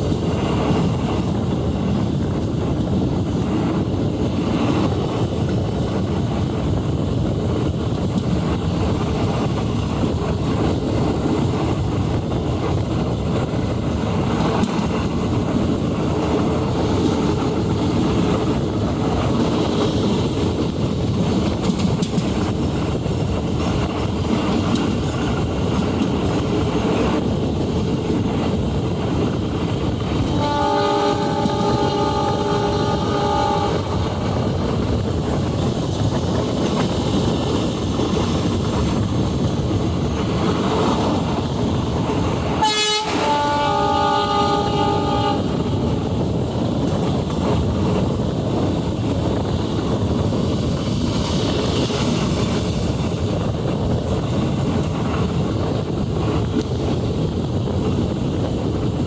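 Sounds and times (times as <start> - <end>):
train rumbling along track: 0.0 - 59.0
locomotive horn blast: 30.3 - 34.0, 42.6 - 45.8.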